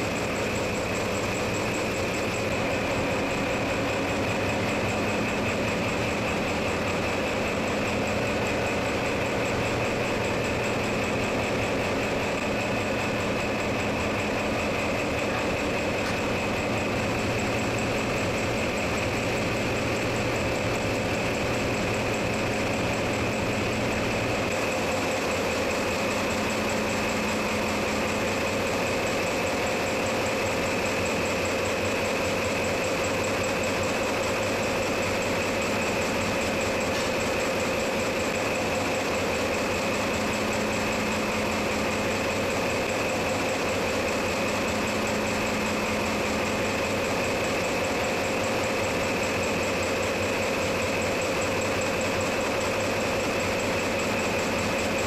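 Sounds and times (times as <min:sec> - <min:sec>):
engine room machinery hum: 0:00.0 - 0:55.0
steady whining tones: 0:00.0 - 0:55.0.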